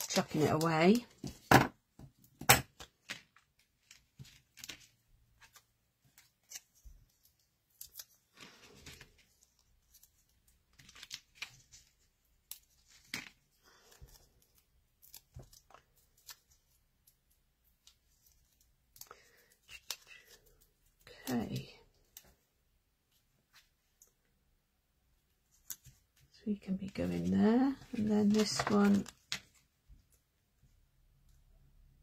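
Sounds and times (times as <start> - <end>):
paper crackling and rustling: 2.8 - 21.4, 25.5 - 29.8.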